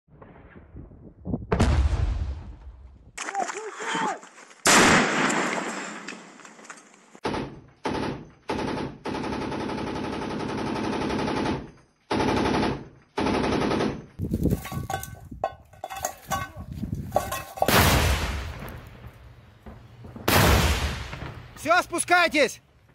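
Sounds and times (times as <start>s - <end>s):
grenade launch blast: 4.7s - 6.1s, 17.7s - 19.1s, 20.2s - 21.6s
single gunshots: 4.7s - 6.4s, 17.7s - 18.9s, 20.2s - 21.6s
machine gun firing bursts: 7.3s - 14.0s.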